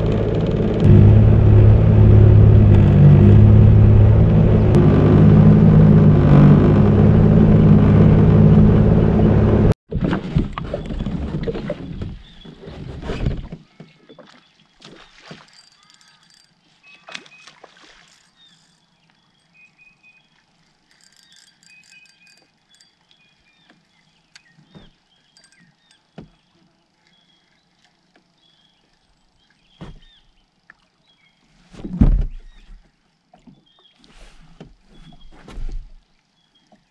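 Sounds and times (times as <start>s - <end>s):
jet ski engine running: 0.0s - 9.8s
birds chirping: 13.7s - 31.5s, 36.2s - 36.9s
small clicks and knocks: 15.4s - 17.2s.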